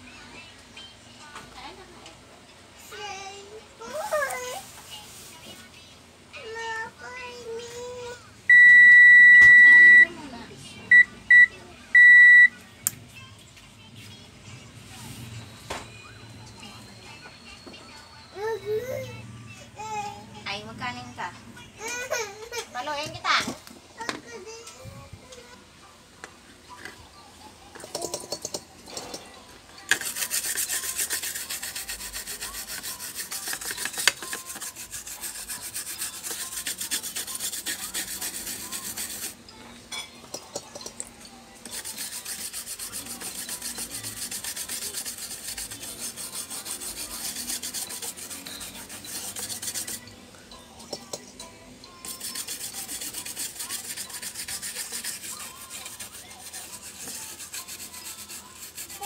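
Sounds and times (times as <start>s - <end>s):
brush scrubbing circuit board: 29.9s - 39.4s, 41.7s - 50.0s, 52.0s - 59.0s.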